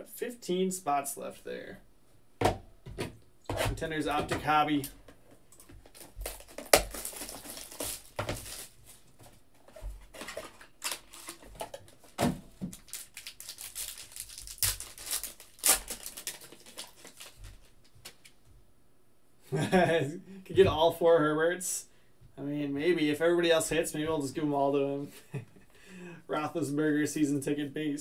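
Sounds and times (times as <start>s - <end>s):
foil card pack crinkling: 5.6s - 9.1s, 10.0s - 18.4s
plastic shrink wrap crinkling and tearing: 5.6s - 9.1s, 10.2s - 18.4s.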